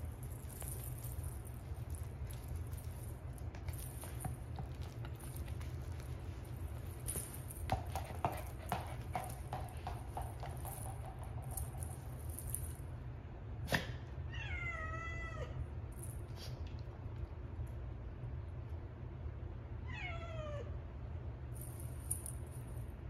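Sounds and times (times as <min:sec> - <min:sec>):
kitten paws scuffling on floor: 0:00.0 - 0:12.8.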